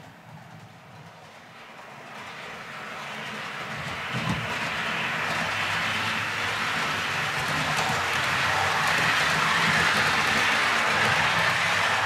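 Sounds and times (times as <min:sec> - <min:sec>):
train wheels on rails: 0:00.0 - 0:12.0
model train electric motor hum: 0:02.9 - 0:12.0.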